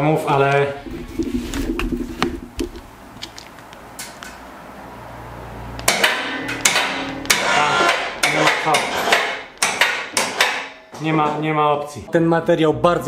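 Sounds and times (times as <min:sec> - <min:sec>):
loud metal clanks and knocks: 0:05.9 - 0:11.1.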